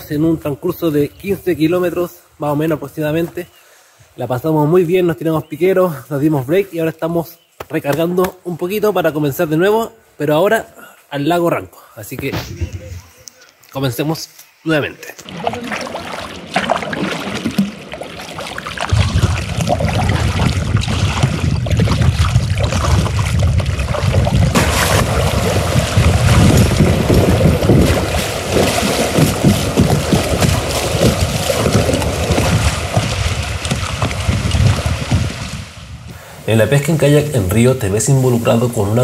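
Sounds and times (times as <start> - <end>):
wind rumble on microphone: 12.3 - 13.2, 18.8 - 37.0
water rushing around kayak: 15.2 - 39.0.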